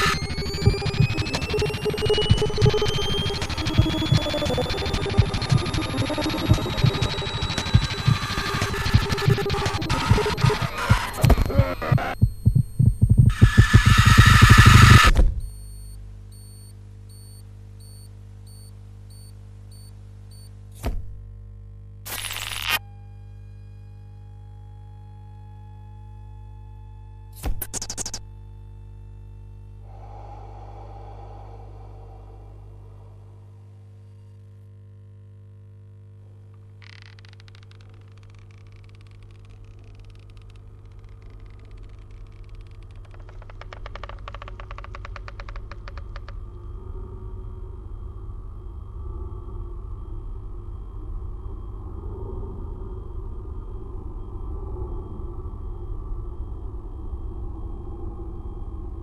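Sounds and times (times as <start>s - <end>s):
low drone: 0.0s - 12.5s, 29.5s - 34.5s, 39.6s - 59.0s
rapid crackling clicks: 0.0s - 15.1s, 36.8s - 46.4s
faint high beeps: 0.0s - 20.5s.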